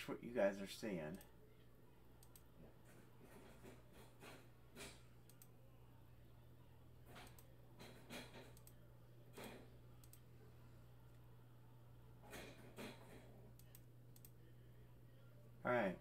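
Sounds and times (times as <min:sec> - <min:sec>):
low steady hum: 0:00.0 - 0:16.0
keyboard and mouse clicks: 0:02.2 - 0:02.5, 0:07.1 - 0:07.5, 0:08.2 - 0:08.8, 0:09.4 - 0:10.2.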